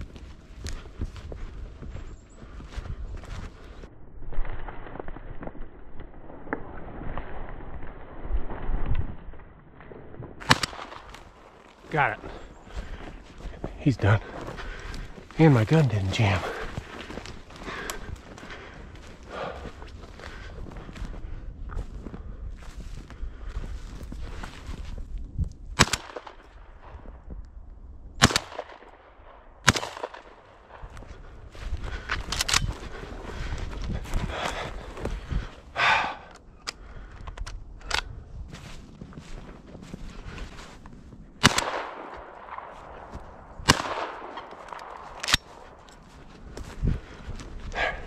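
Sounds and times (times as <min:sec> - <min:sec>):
footsteps crunching through snowy brush: 0:00.0 - 0:03.9, 0:10.4 - 0:25.7, 0:30.5 - 0:36.2, 0:38.1 - 0:48.0
sharp cracks: 0:04.3 - 0:13.0, 0:25.8 - 0:27.1, 0:28.2 - 0:31.1, 0:41.4 - 0:46.0
shotgun shots: 0:10.4 - 0:11.2, 0:25.8 - 0:26.4, 0:28.2 - 0:28.9, 0:29.6 - 0:30.4, 0:41.4 - 0:45.5.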